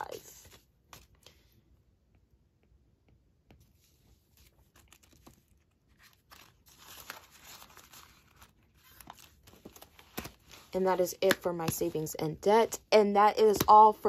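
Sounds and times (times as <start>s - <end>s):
banknotes rustling: 3.6s - 12.2s.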